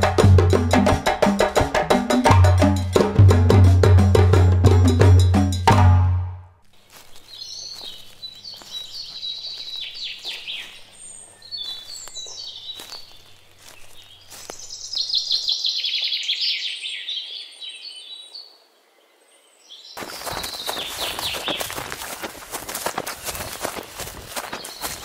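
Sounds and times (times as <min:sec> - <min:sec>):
birds singing and chirping: 0:06.8 - 0:25.0.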